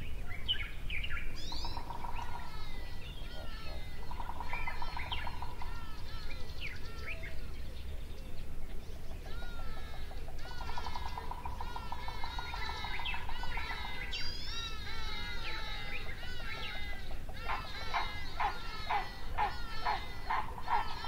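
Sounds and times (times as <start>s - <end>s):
bird trill: 0.0s - 21.0s
birds chirping: 0.0s - 21.0s.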